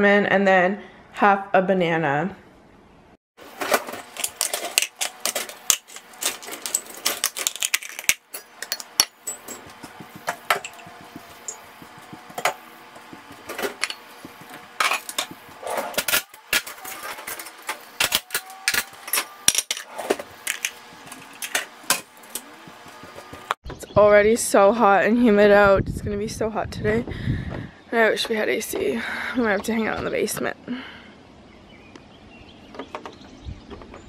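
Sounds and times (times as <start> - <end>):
plastic containers clattering on countertop: 13.2 - 17.8.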